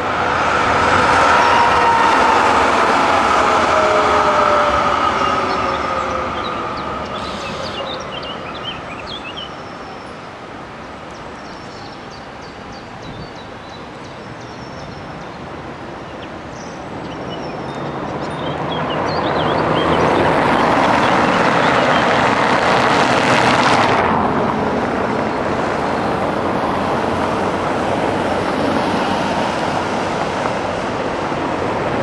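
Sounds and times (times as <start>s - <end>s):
tram rumble: 0.0s - 11.4s, 15.1s - 32.0s
street noise: 0.0s - 32.0s
birds chirping: 4.4s - 10.3s, 16.1s - 22.3s.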